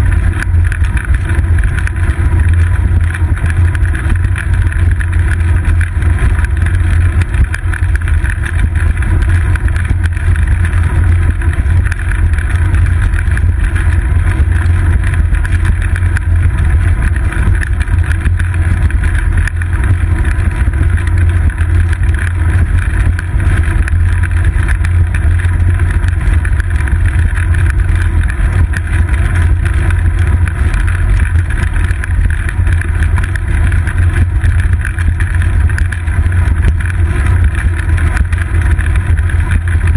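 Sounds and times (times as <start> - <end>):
wind and road vibration rumble: 0.0 - 39.9.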